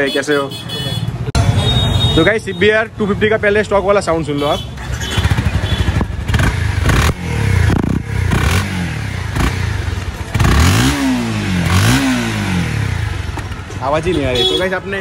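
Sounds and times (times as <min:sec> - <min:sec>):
motorcycle engine revving: 0:04.6 - 0:13.8.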